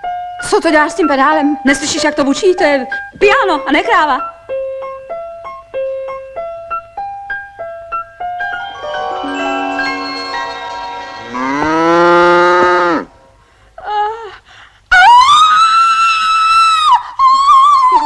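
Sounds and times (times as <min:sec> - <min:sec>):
piano notes: 0:00.0 - 0:13.5
cow mooing: 0:11.3 - 0:13.2.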